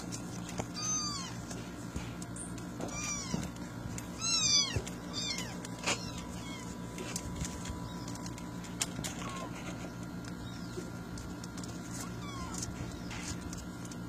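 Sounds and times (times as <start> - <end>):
low hum: 0.0 - 14.0
kittens mewing: 0.7 - 1.6, 2.2 - 8.2, 8.8 - 10.7, 11.8 - 13.4.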